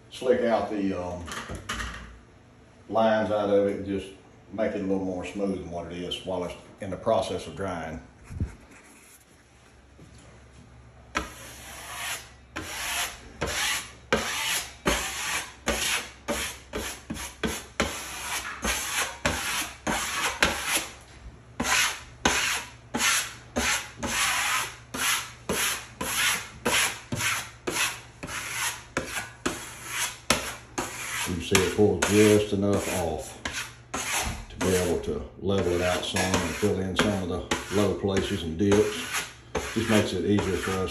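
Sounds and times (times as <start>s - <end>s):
drywall knife scraping mud: 11.2s - 21.0s, 21.6s - 40.9s.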